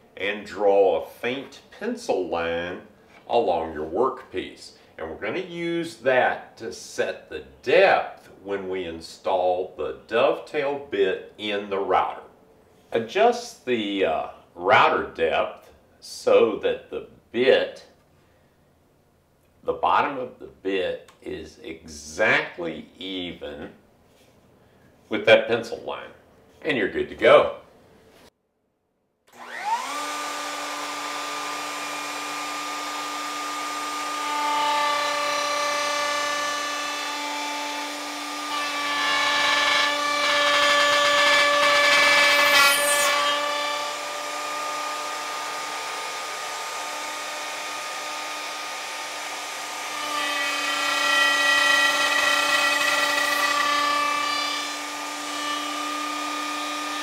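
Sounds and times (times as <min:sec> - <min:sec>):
router whining and cutting wood: 0:29.3 - 0:57.0.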